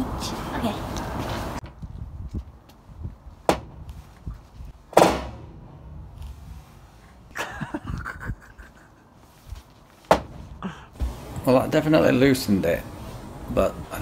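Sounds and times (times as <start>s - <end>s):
hammer striking wooden board: 3.5s - 3.8s, 5.0s - 5.6s, 10.1s - 10.4s.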